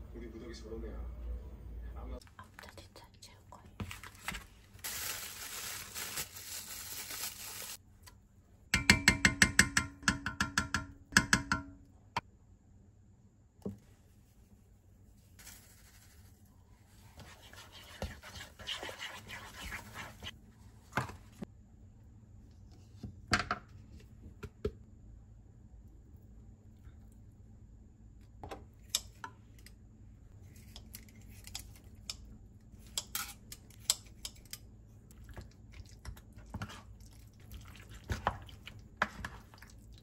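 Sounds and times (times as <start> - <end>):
plastic bag rustling: 3.8 - 7.8, 15.4 - 16.4
scraping and stirring in container: 15.5 - 20.4, 32.8 - 40.0.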